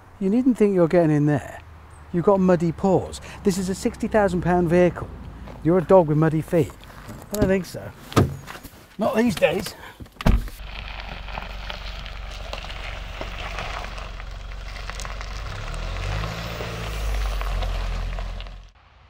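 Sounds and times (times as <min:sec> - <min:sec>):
tyres crunching on gravel: 0:00.3 - 0:09.8, 0:10.4 - 0:18.7
car engine rumble: 0:01.4 - 0:08.8, 0:09.4 - 0:18.8
car door thudding shut: 0:07.1 - 0:08.6, 0:10.2 - 0:10.6.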